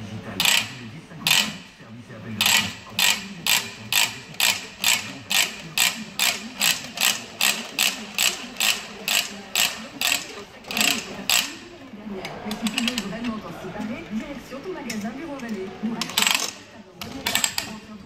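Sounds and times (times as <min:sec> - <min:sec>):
ratchet pawl clicking: 0:00.4 - 0:01.7, 0:02.4 - 0:11.6, 0:16.0 - 0:17.8.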